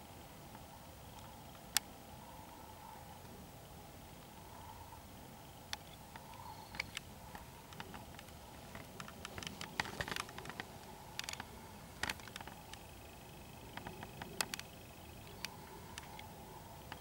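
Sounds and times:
camera handling clicks and rustles: 7.7s - 11.4s.

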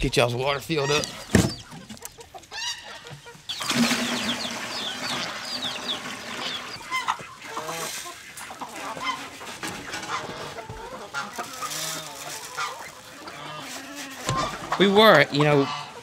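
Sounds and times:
chickens clucking: 0.0s - 16.0s
hose water running into bucket: 3.5s - 7.2s.

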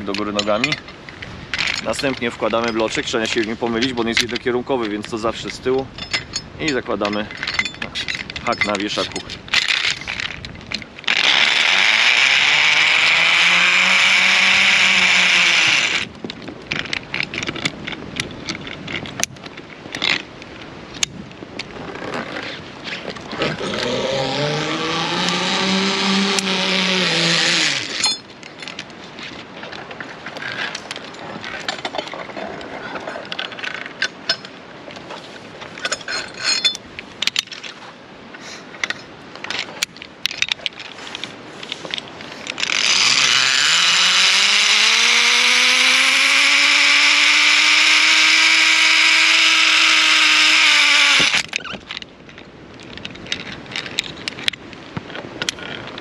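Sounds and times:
carabiners handled: 0.0s - 12.0s, 14.0s - 37.8s, 38.8s - 56.0s
zipline pulleys whining on cable: 11.0s - 16.1s, 23.4s - 28.3s, 42.5s - 51.6s.

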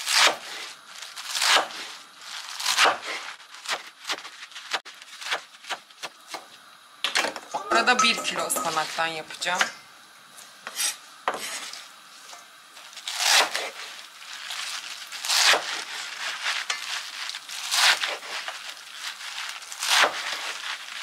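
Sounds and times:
knife slicing spinach on board: 0.0s - 6.5s, 13.0s - 21.0s.

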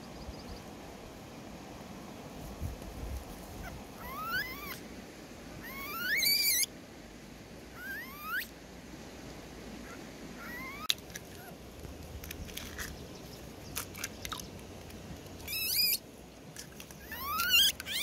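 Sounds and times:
baby monkeys squealing: 3.6s - 4.8s, 5.6s - 6.7s, 7.8s - 8.5s, 9.9s - 11.6s, 15.5s - 16.0s, 17.0s - 18.0s.

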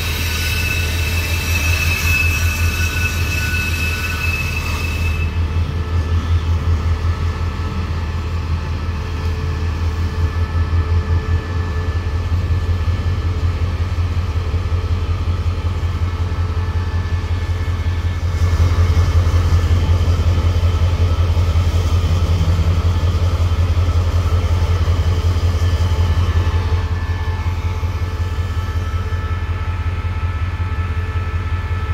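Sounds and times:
faint wheel squeals: 0.0s - 5.4s
freight train rumbling: 0.0s - 31.9s.

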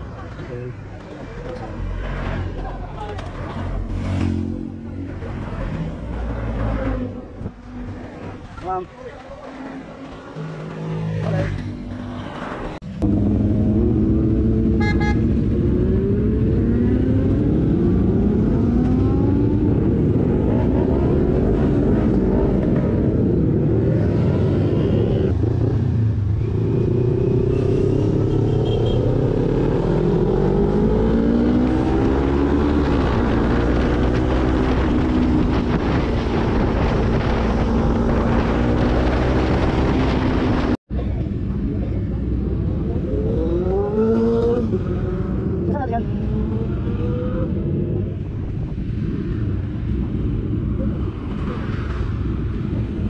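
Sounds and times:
motorcycle engine accelerating: 12.8s - 40.8s.

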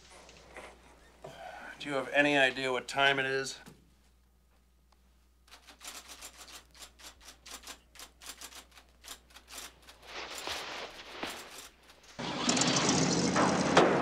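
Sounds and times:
typewriter keys clacking: 5.5s - 10.0s.

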